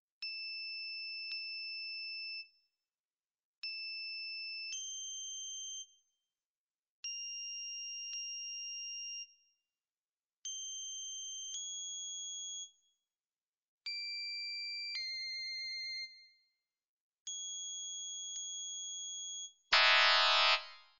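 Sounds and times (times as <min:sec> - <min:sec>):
electronic pure tones: 0:19.8 - 0:20.8.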